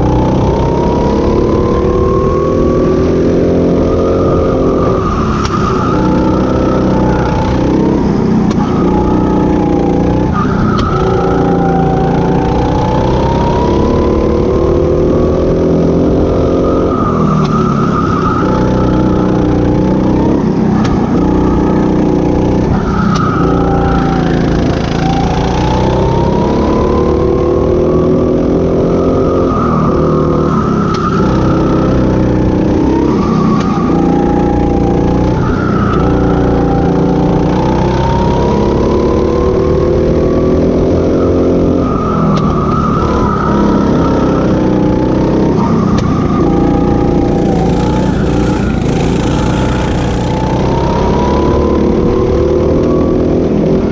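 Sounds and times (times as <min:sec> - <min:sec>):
go-kart engine revving: 0:00.0 - 0:53.9.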